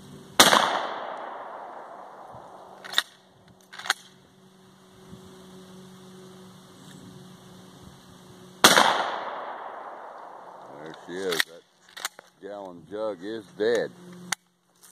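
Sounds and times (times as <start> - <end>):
shotgun blast with echo: 0.4 - 2.3, 8.6 - 10.0.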